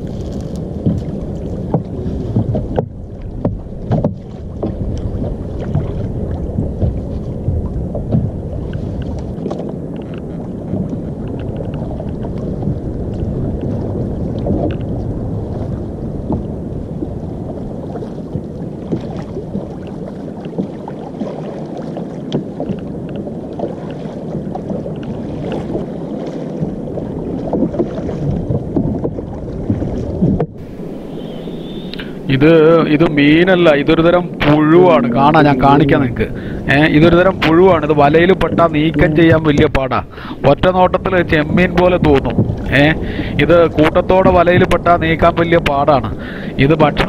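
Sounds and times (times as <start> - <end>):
water lapping around a boat: 0.0 - 47.0
wind: 0.0 - 47.0
knocks on wooden boat: 0.8 - 5.0, 5.6 - 8.4, 27.5 - 30.6, 37.4 - 39.9, 41.7 - 42.7
small splashes: 23.5 - 32.3.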